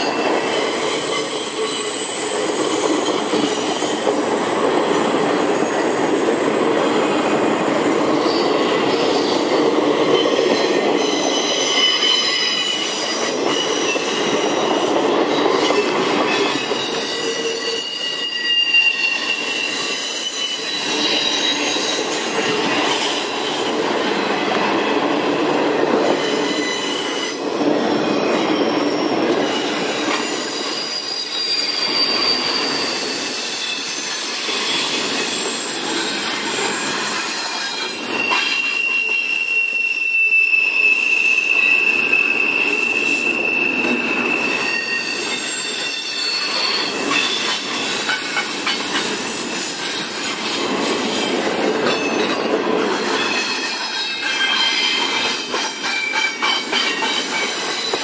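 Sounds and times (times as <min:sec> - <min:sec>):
high-pitched wheel squeal: 0:00.0 - 0:04.1, 0:10.1 - 0:14.6, 0:15.6 - 0:22.1, 0:26.2 - 0:27.4, 0:28.4 - 0:50.4
train wheels rumbling on rails: 0:00.0 - 0:58.0.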